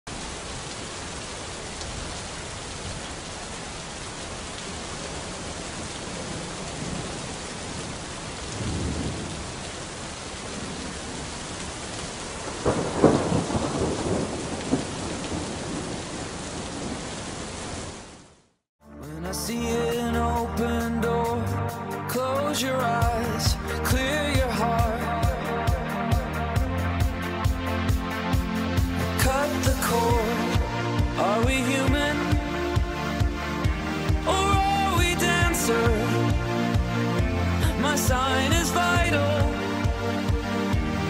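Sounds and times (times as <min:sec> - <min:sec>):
steady rain: 0:00.1 - 0:18.7, 0:19.4 - 0:41.0
thunder rumbling: 0:08.5 - 0:09.7, 0:12.4 - 0:17.1.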